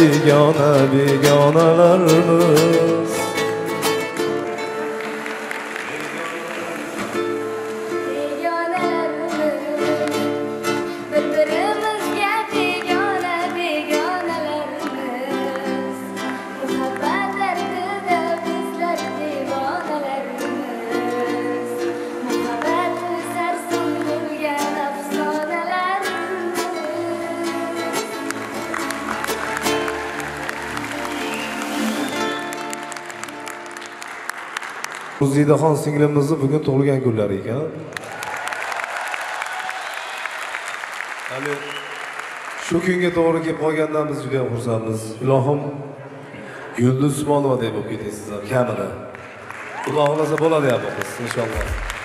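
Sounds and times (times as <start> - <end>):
person singing: 0.0 - 4.7, 6.0 - 30.3
acoustic guitars and band: 0.0 - 37.1, 50.5 - 52.0.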